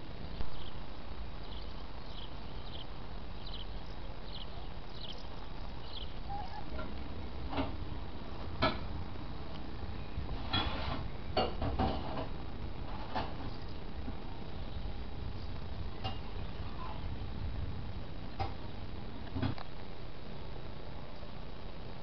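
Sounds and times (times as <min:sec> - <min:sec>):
steady low rumble: 0:00.0 - 0:22.0
bird chirping: 0:00.3 - 0:07.2, 0:09.8 - 0:10.4, 0:13.2 - 0:17.1.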